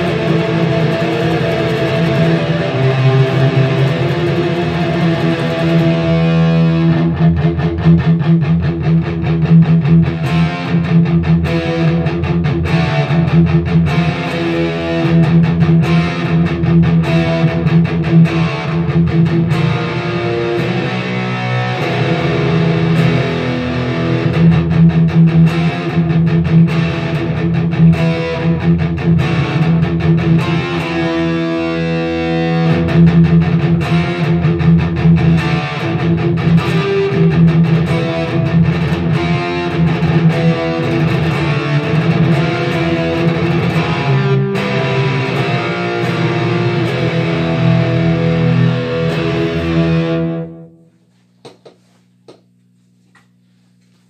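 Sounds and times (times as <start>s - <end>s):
fuzzy electric guitar: 0.0s - 51.1s.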